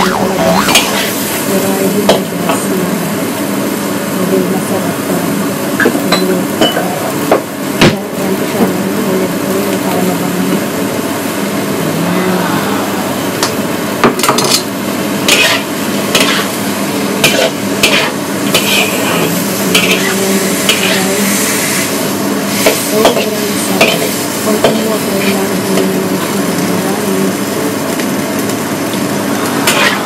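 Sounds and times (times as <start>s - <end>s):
low hum: 0.0s - 2.0s
food sizzling in a wok: 0.1s - 30.0s
metal utensil scraping a wok: 15.2s - 16.6s, 17.2s - 21.8s, 29.6s - 30.0s.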